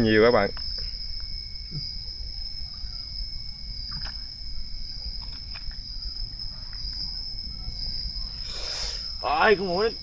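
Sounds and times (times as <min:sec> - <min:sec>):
crickets trilling: 0:00.0 - 0:10.0.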